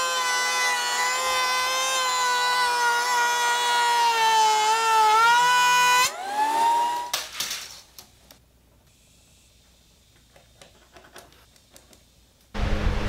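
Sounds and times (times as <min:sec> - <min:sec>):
thickness planer whining: 0:00.0 - 0:07.1
rising machine whine: 0:12.6 - 0:13.0.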